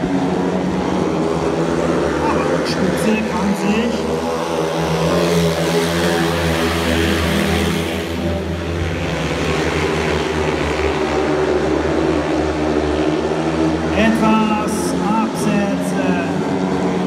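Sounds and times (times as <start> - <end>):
motorcycles racing: 0.0 - 17.0.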